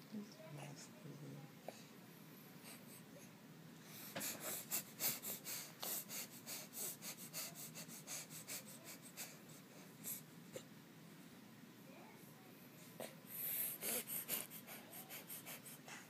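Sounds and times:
baby sniffling: 0:04.2 - 0:10.7, 0:13.0 - 0:16.0.

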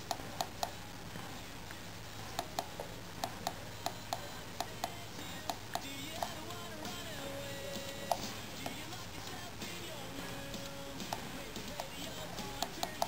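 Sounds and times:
push-buttons clicking: 0:02.4 - 0:06.4, 0:12.6 - 0:13.0.

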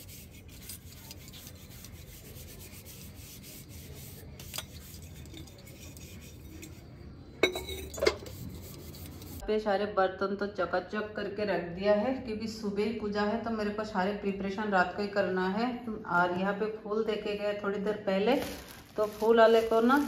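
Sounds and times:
scrubbing brass pot: 0:00.0 - 0:09.4
brass vessels clanking together: 0:07.4 - 0:08.3.

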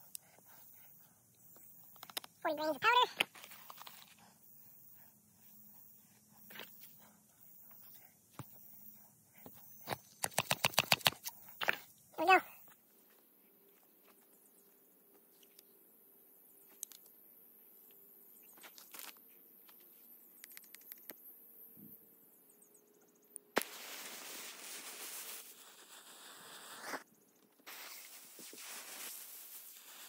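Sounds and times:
sharp crack of fuse catching: 0:23.5 - 0:24.0
burning fuse hissing: 0:23.5 - 0:30.0.

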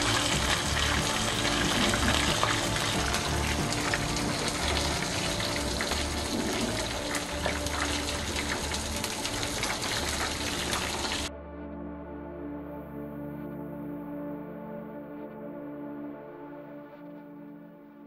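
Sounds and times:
oil sizzling and crackling: 0:00.0 - 0:11.3
soft background music: 0:00.0 - 0:18.0.

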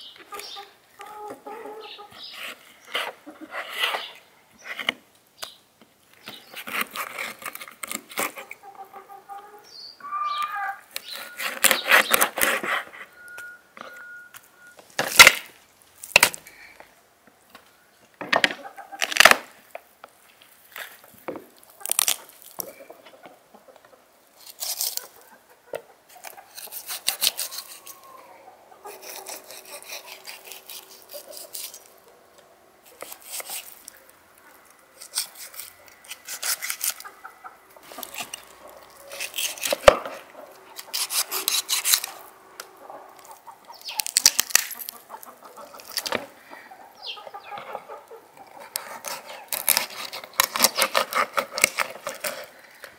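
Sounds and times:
knife rasping through chicken: 0:26.2 - 0:28.1, 0:28.9 - 0:31.9, 0:32.9 - 0:33.8, 0:35.0 - 0:37.1, 0:39.1 - 0:39.9, 0:40.8 - 0:42.2, 0:48.6 - 0:52.5.

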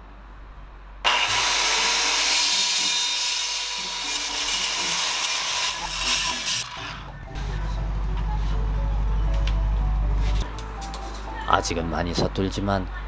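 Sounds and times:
circular saw cutting wood: 0:01.0 - 0:07.1.

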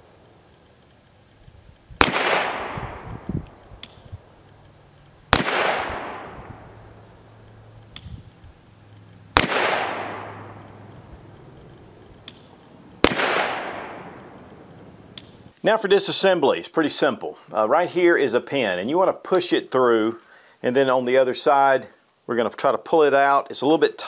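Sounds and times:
rolling echo of gunshots: 0:02.0 - 0:03.3, 0:05.3 - 0:06.7, 0:09.3 - 0:11.0, 0:13.0 - 0:14.5
pistol shots: 0:02.0 - 0:04.0, 0:05.3 - 0:06.8, 0:09.3 - 0:10.9, 0:12.2 - 0:14.4.

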